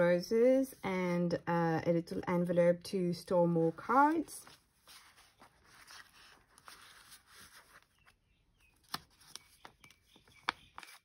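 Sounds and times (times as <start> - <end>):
card rustling into paper pocket: 4.0 - 11.0.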